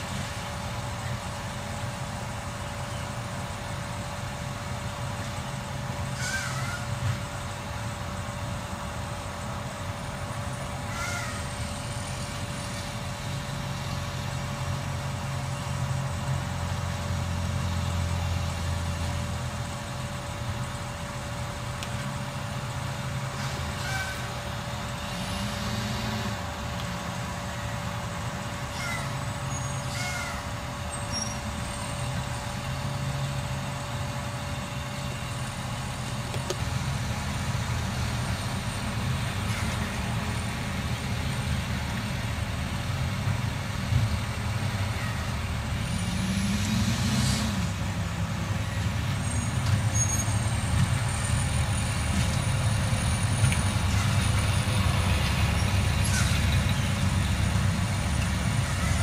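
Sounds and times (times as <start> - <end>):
garbage truck diesel engine idling: 0.0 - 45.9.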